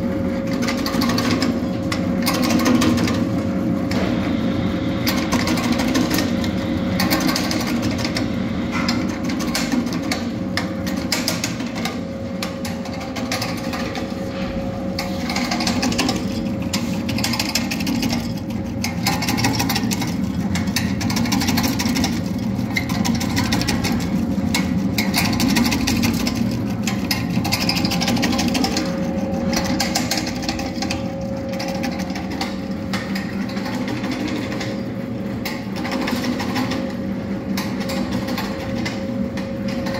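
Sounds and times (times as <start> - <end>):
machine hum: 0.0 - 39.9
nut cutting machine clattering: 15.0 - 34.8.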